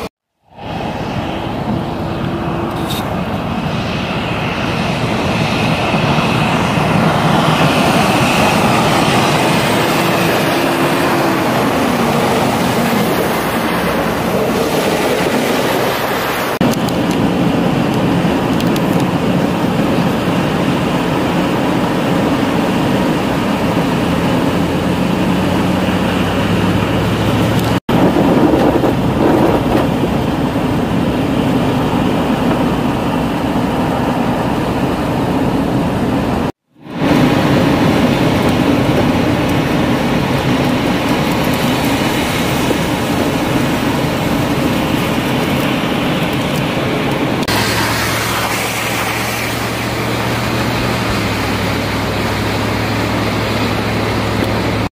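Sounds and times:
car tyre noise on snowy road: 0:00.0 - 0:54.9
snowplow trucks passing: 0:00.0 - 0:54.9
steel blades scraping snowy road: 0:00.7 - 0:16.6, 0:37.0 - 0:54.9.

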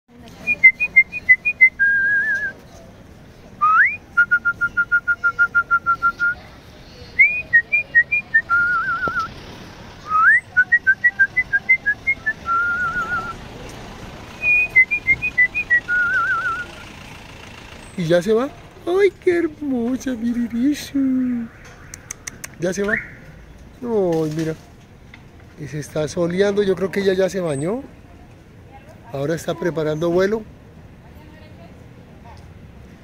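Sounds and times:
whistled phrases: 0:00.4 - 0:02.6, 0:03.6 - 0:09.3, 0:10.0 - 0:13.4, 0:14.4 - 0:16.8, 0:20.7 - 0:23.2.

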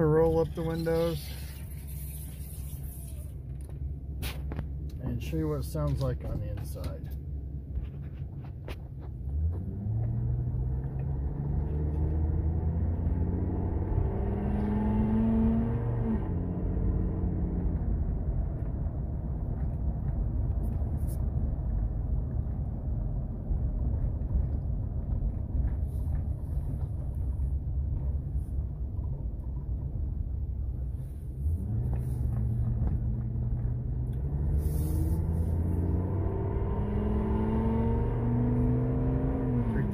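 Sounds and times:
truck engine accelerating: 0:09.1 - 0:39.9.

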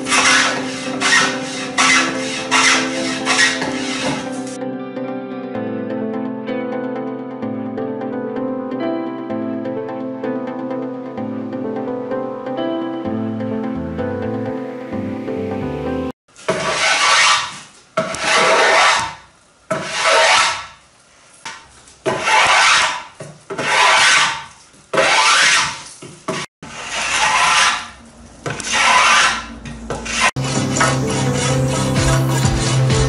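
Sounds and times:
tool strokes along wood: 0:00.0 - 0:04.6, 0:16.5 - 0:20.8, 0:22.1 - 0:33.0.

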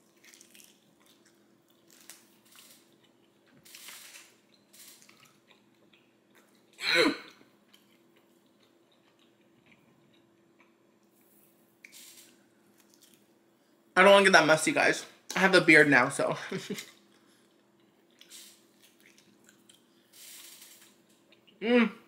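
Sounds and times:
wet chewing: 0:07.7 - 0:11.2, 0:16.9 - 0:21.6.

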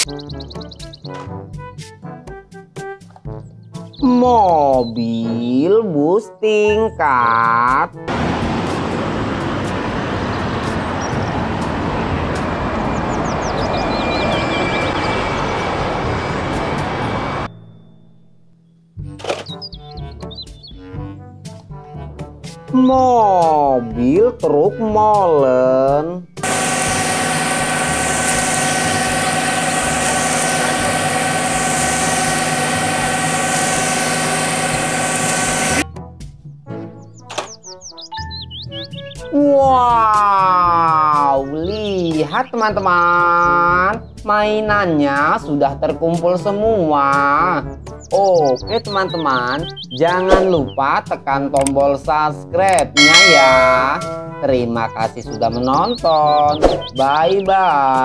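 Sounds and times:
bus engine and traffic noise: 0:08.0 - 0:17.8
diesel engine running with whine: 0:08.1 - 0:18.6, 0:26.4 - 0:35.8
short high chirps: 0:53.0 - 0:54.4.

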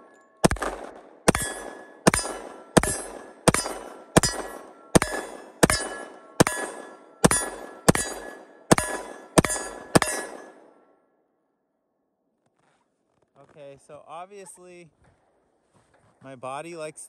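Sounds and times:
pistol shots: 0:00.0 - 0:10.7
steel target clanging: 0:00.0 - 0:10.8.

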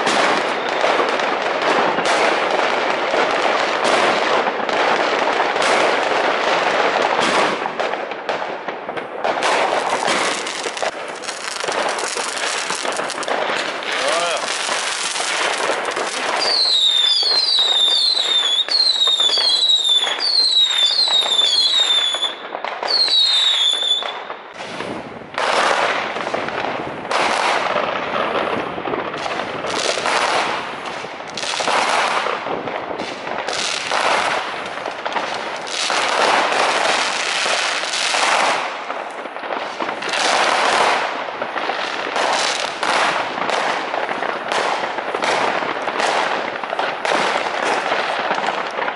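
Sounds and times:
firework bangs and crackling: 0:00.0 - 0:48.9
firework cracks: 0:00.0 - 0:48.9
firework whistles falling in pitch: 0:16.4 - 0:24.3.

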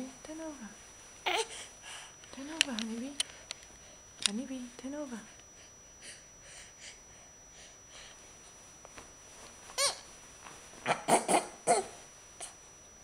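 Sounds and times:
baby fussing cries: 0:09.8 - 0:10.0
baby squealing: 0:09.8 - 0:10.0.

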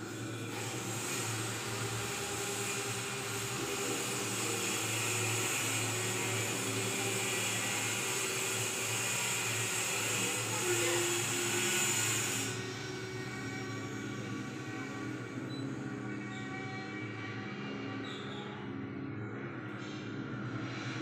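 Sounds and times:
mechanical whir: 0:00.0 - 0:16.8.

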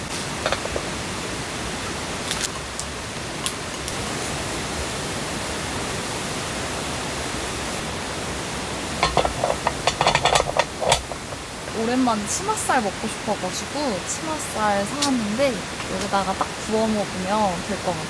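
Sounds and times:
steady rushing noise: 0:00.0 - 0:18.0
grill plate clicks and knocks: 0:00.4 - 0:00.9, 0:09.0 - 0:11.5.

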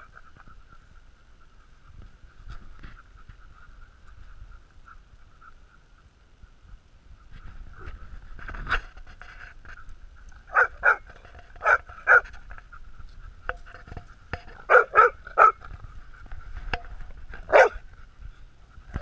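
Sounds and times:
dogs barking: 0:10.5 - 0:12.4, 0:14.5 - 0:15.7, 0:17.4 - 0:17.9.

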